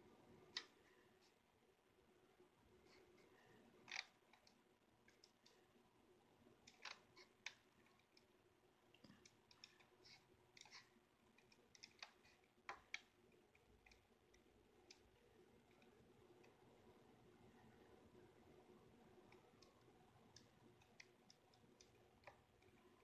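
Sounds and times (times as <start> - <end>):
computer mouse clicks: 3.8 - 5.6, 6.6 - 8.3, 9.0 - 16.6, 19.2 - 23.0.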